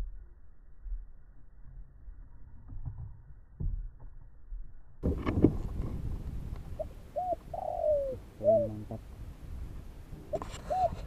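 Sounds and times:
dove cooing: 6.8s - 9.0s, 10.3s - 11.0s.

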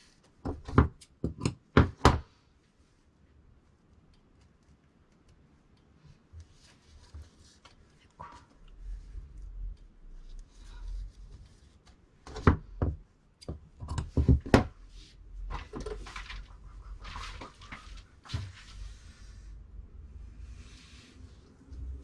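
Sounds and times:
cloth rustling: 14.8s - 19.5s.

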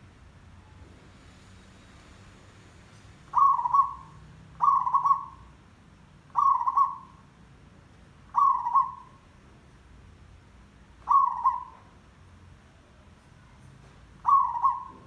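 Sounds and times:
dove cooing: 3.3s - 5.5s, 6.3s - 7.2s, 8.3s - 9.2s, 11.0s - 11.9s, 14.2s - 15.0s.

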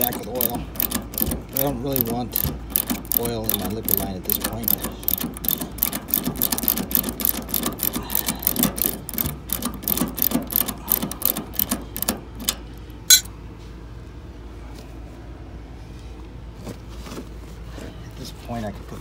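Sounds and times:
ratchet wrench clicking: 0.0s - 13.3s.

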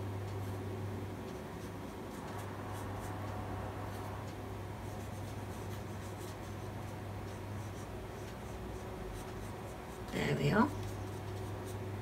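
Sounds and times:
steady low hum: 0.0s - 12.0s
paintbrush scratching on paper: 4.8s - 11.9s.

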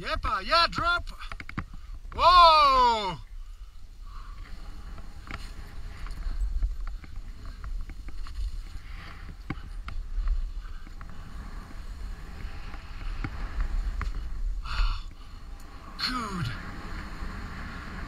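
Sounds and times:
wind buffeting microphone: 1.7s - 18.0s
faint ticks: 3.4s - 15.8s
hiss of snow spraying: 11.1s - 18.0s.

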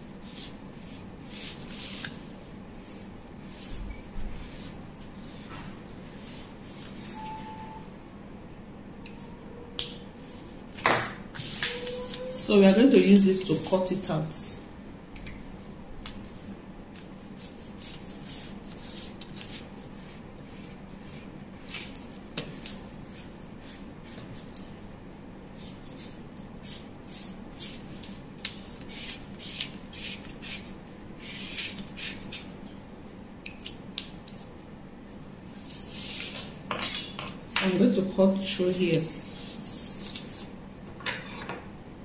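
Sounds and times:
steady low hum: 0.0s - 42.0s
marker scratching on paper: 0.2s - 2.1s, 2.8s - 7.2s, 17.0s - 21.3s, 25.6s - 27.8s.

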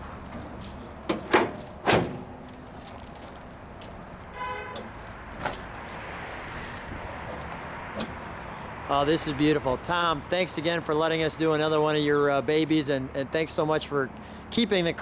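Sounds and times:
metal car hood thumping shut: 1.1s - 2.4s.

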